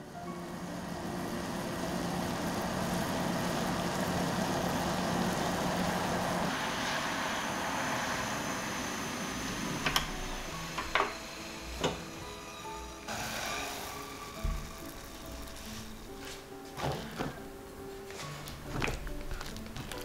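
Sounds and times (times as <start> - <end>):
gas burner hiss: 0.0 - 19.4
water and butter sizzling in saucepan: 0.3 - 17.3.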